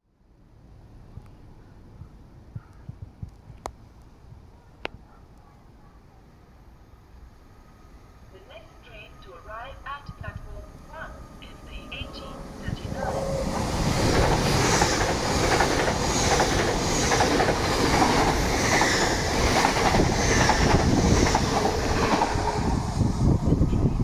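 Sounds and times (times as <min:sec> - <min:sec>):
train wheels rumbling on rails: 0:10.1 - 0:24.0
rush of air: 0:12.9 - 0:24.0
wheels clickety-clack: 0:14.0 - 0:22.5.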